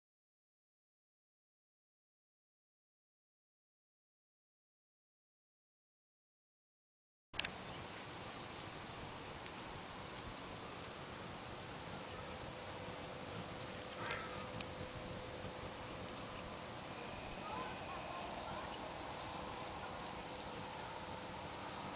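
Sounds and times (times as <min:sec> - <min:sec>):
click: 0:07.4 - 0:07.6
night insects trilling: 0:07.4 - 0:21.9.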